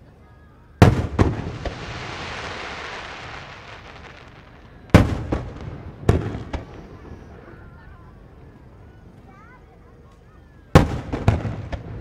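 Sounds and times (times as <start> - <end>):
firework shells booming: 0.8 - 7.7, 10.8 - 12.0
crackling firework sparks: 0.8 - 8.8.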